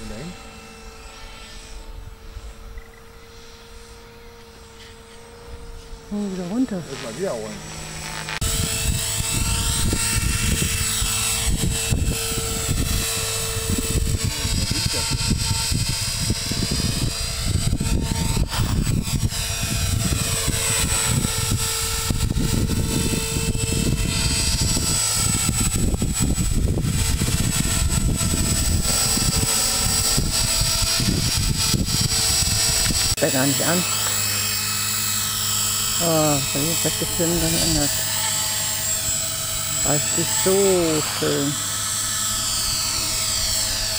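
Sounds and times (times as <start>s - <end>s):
rc helicopter rotor whine: 0.0s - 43.9s.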